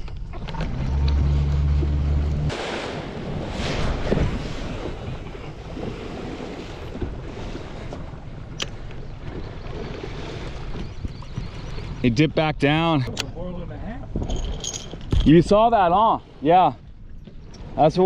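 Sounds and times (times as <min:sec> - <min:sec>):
wind on microphone: 0:00.0 - 0:12.1
sea washing against boat: 0:00.0 - 0:13.2
boat engine humming: 0:00.0 - 0:18.0.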